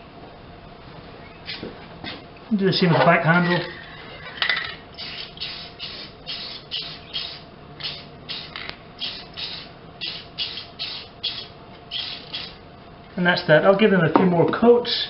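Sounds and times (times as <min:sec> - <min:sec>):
spray can hissing in bursts: 0:05.0 - 0:12.6.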